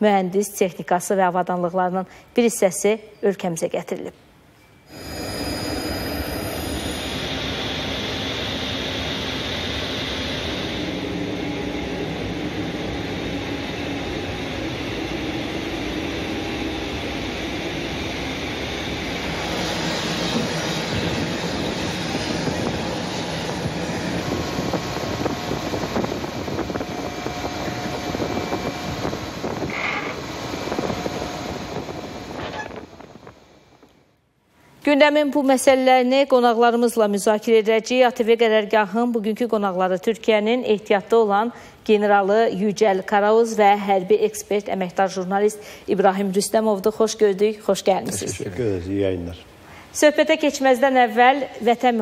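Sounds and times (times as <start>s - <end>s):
high whine: 4.6s - 34.2s
turboprop aircraft engine: 4.9s - 33.9s.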